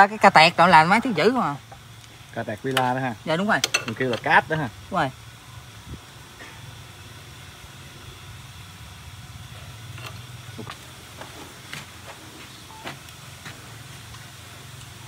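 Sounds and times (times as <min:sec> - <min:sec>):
hand tools clicking on metal: 0:03.6 - 0:04.3.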